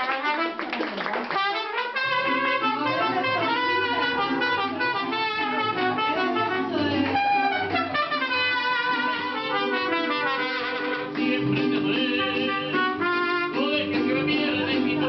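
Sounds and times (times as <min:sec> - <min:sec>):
mariachi trumpets: 0:00.0 - 0:14.9
guitars: 0:02.0 - 0:15.0.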